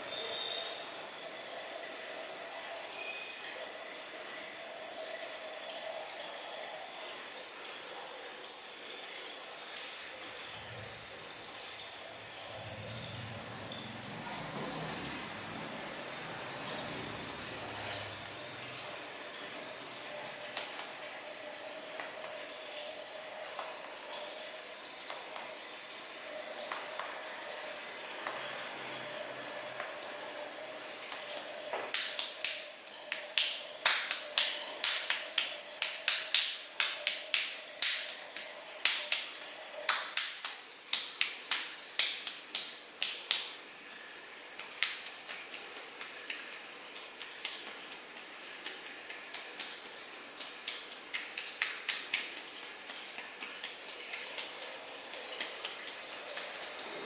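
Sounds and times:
rhythmic sharp hand claps: 20.2s - 21.0s, 31.1s - 43.6s, 44.6s - 56.8s.

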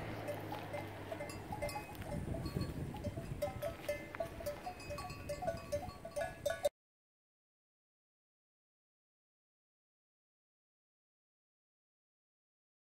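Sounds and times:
cowbells clinking: 0.0s - 6.7s.

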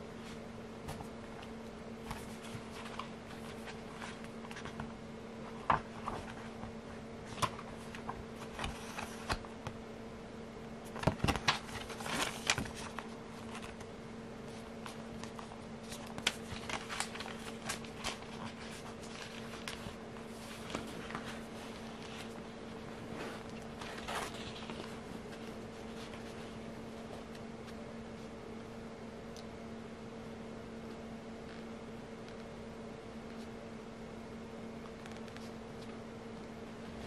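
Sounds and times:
low electrical hum: 0.0s - 37.0s
soft rustles: 14.4s - 28.4s.

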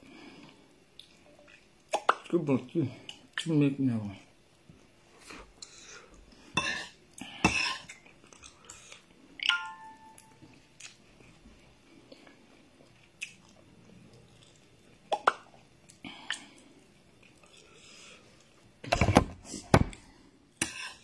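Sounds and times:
chewing and mouth noises: 10.2s - 18.6s.

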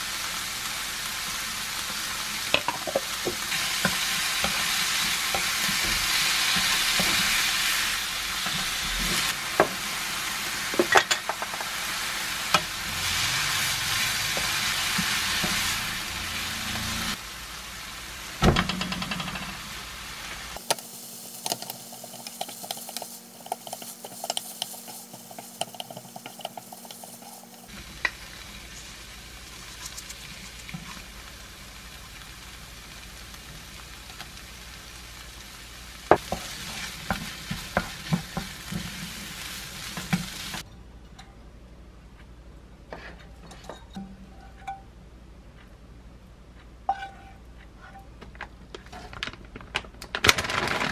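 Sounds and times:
rice sizzling in a frying pan: 0.0s - 40.6s
wooden spoon scraping a pan: 21.4s - 27.8s, 46.9s - 48.1s.

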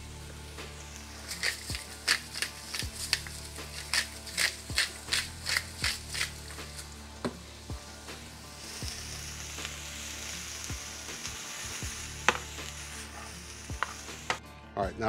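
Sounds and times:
vegetables sizzling in a frying pan: 0.0s - 14.4s
utensil clicking against pan: 1.2s - 6.9s, 13.7s - 14.4s.

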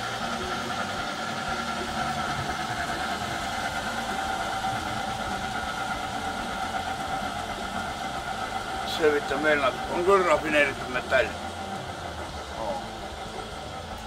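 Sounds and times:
machine humming: 0.0s - 14.0s.

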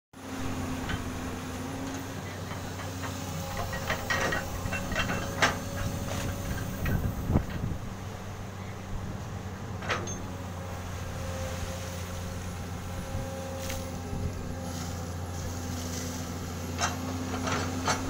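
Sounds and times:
excavator running: 0.2s - 18.0s
metal knocks and clanks: 2.2s - 7.7s.

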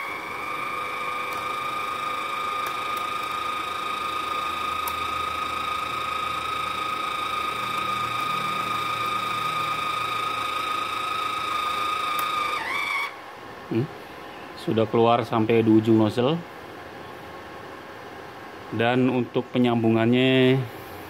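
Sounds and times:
welder wire-feed motor whine: 0.0s - 13.8s.

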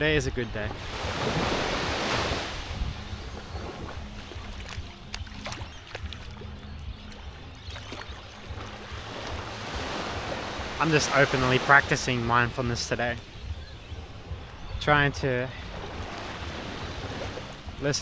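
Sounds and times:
wind on microphone: 0.0s - 7.1s, 12.4s - 17.8s
small waves lapping on shore: 0.2s - 18.0s.

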